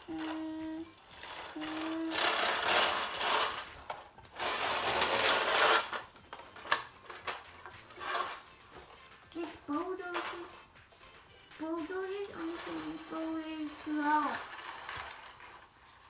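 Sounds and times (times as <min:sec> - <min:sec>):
toy bulldozer buzzing rattle: 0:01.1 - 0:08.4, 0:12.3 - 0:16.0.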